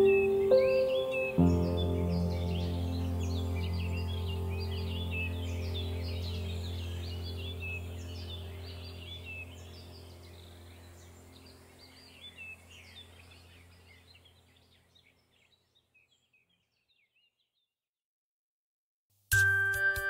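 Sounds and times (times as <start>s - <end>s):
steady low drone: 0.0s - 13.8s
birds chirping: 0.0s - 17.7s.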